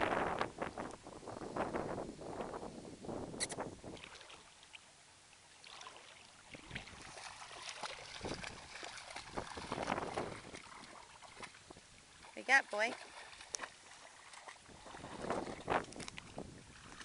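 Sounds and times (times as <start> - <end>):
water splashing around dog's legs: 3.8 - 4.9, 5.6 - 17.0.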